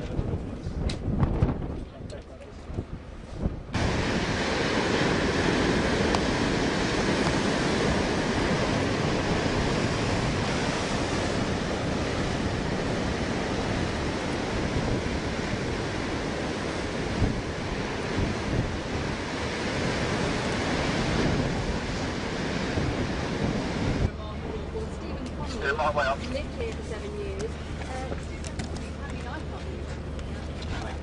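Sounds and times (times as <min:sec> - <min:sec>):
wind buffeting the microphone: 0:00.0 - 0:31.0
surf breaking on the shore: 0:03.4 - 0:26.9.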